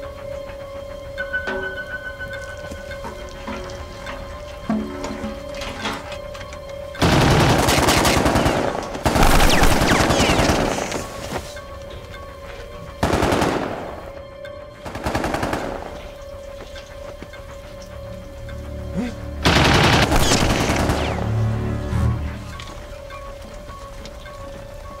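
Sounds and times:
machine-gun fire: 0:19.5 - 0:21.2.

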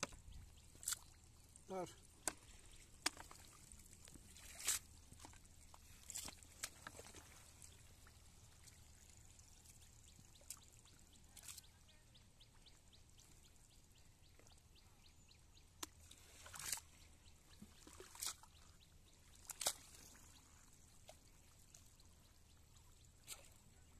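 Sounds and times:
water dripping and splashing: 0:00.0 - 0:11.7, 0:17.5 - 0:18.7, 0:19.3 - 0:21.9.

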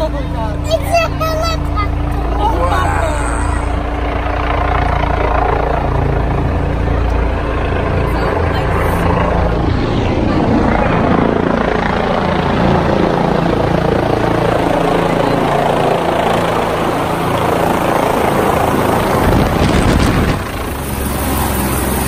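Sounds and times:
helicopter rotor and turbine: 0:00.0 - 0:22.0
wind buffeting the microphone: 0:17.5 - 0:21.1.

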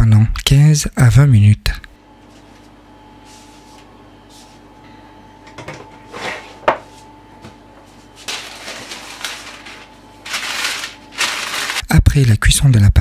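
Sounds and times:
parchment paper rustling: 0:08.0 - 0:11.9.

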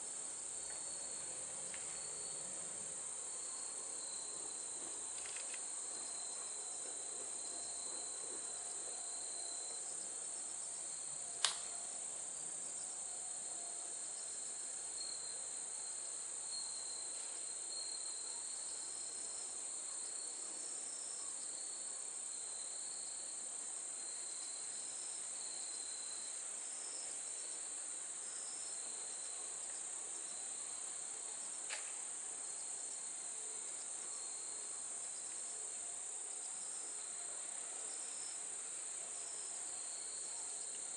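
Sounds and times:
insects chirring: 0:00.1 - 0:40.9
sharp click: 0:11.4 - 0:11.7.

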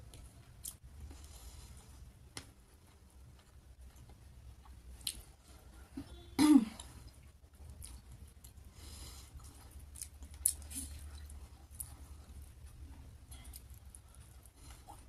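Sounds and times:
person clearing throat: 0:06.0 - 0:06.8
chewing with mouth clicks: 0:06.8 - 0:08.7, 0:09.4 - 0:15.0.

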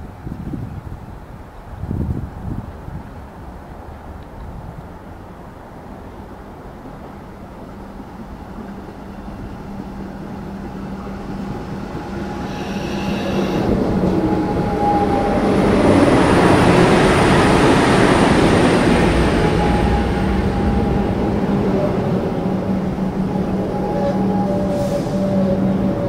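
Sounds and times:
electric train rumbling in: 0:01.6 - 0:26.0
brief high tone: 0:12.5 - 0:13.8.

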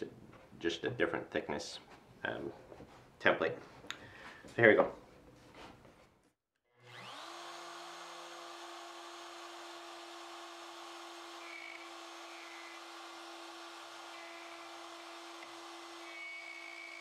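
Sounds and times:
router whining: 0:06.7 - 0:17.0.

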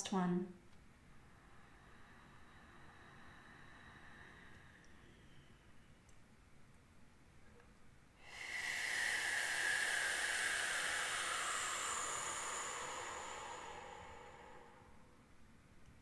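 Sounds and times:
person exhaling through mouth: 0:01.4 - 0:05.6, 0:08.2 - 0:15.2.

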